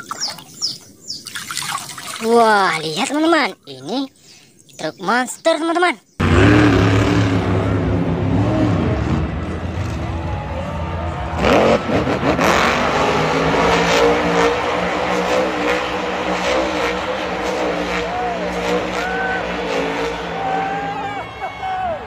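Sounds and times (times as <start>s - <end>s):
monster truck engine revving: 6.2s - 22.0s
stadium crowd: 6.2s - 22.0s.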